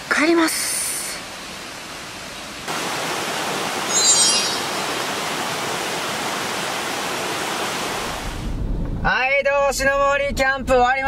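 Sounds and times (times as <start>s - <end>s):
stream running over rocks: 0.0s - 8.4s
high chirp: 3.9s - 4.8s.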